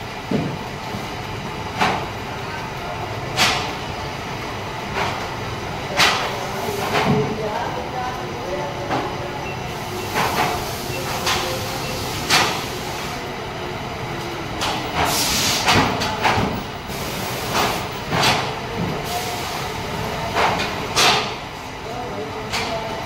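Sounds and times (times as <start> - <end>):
machine hiss: 15.0 - 15.8, 16.9 - 17.9.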